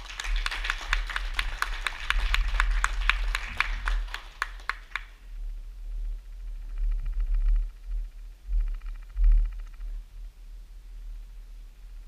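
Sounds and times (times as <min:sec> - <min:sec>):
small audience applauding: 0:00.0 - 0:05.2.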